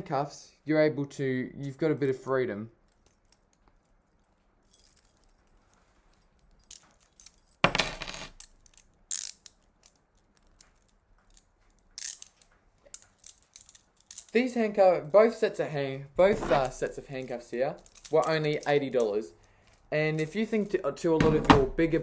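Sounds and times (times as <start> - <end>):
handcuffs clicking and clinking: 2.8 - 14.6, 16.6 - 20.8.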